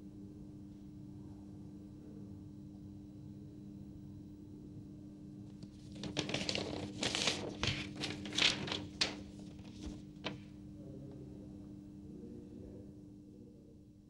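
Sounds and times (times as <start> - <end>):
faint steady hum: 0.0 - 14.0
paper rustling: 5.6 - 10.6.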